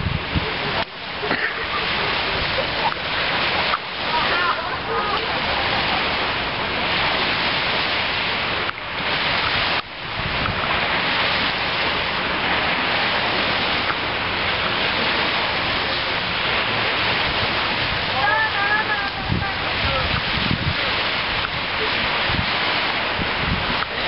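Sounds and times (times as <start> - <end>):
sea surf washing onto beach: 0.0 - 24.0.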